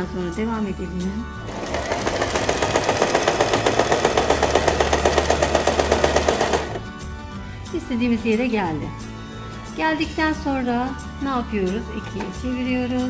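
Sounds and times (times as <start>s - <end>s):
sewing machine needle clattering: 1.5s - 6.8s.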